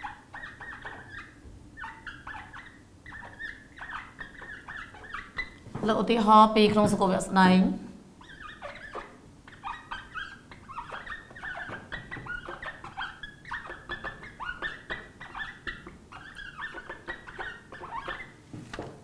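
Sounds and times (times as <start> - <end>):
marker squeaking on whiteboard: 0.0 - 7.1, 8.2 - 19.0.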